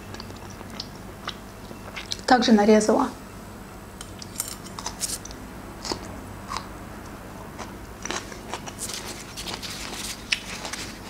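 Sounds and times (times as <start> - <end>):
crunchy chewing: 4.0 - 11.0.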